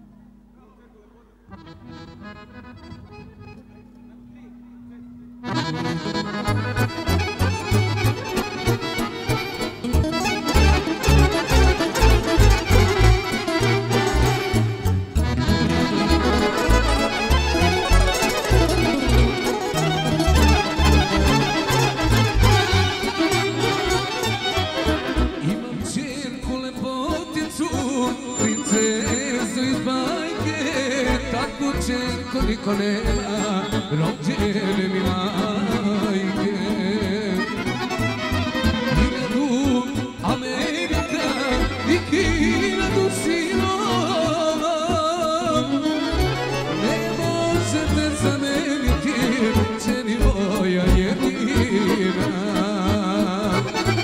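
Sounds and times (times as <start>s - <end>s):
live band playing: 1.5s - 4.3s, 5.4s - 54.0s
electric violin: 5.4s - 26.4s, 27.2s - 54.0s
man singing into microphone: 25.1s - 54.0s.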